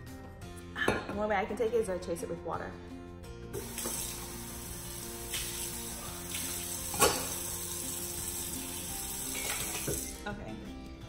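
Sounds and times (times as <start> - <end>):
water running from tap: 3.6 - 10.3.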